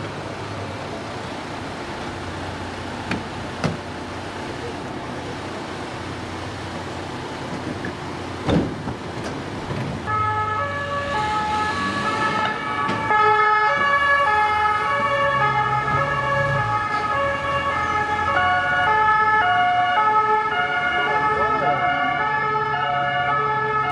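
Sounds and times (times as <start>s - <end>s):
two-tone police sirens: 10.0s - 23.9s.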